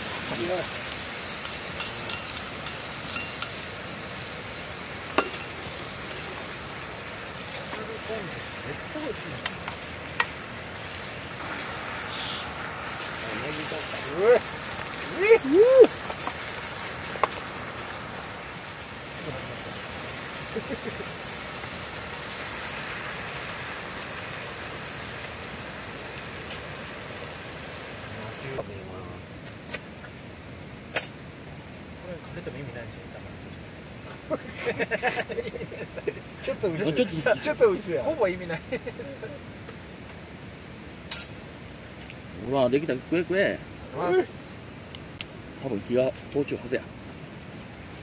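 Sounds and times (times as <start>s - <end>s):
meat sizzling in a skillet: 0.0s - 28.6s, 41.0s - 44.5s.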